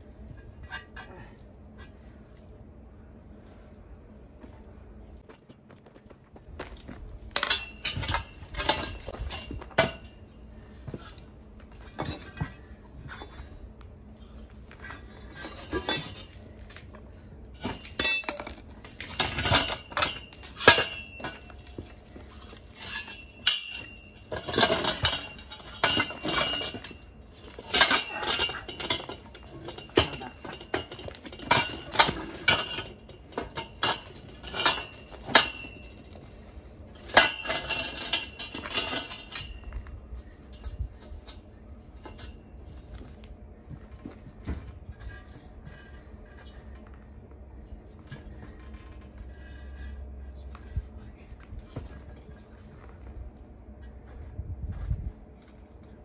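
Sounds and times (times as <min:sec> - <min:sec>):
metal pipes clanking together: 0:07.4 - 0:10.2, 0:17.6 - 0:36.4, 0:37.0 - 0:39.9.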